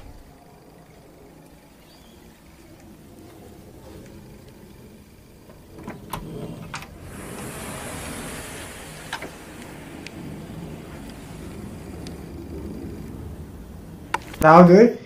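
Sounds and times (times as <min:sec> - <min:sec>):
door opening hiss: 0:00.0 - 0:00.4, 0:05.5 - 0:14.6.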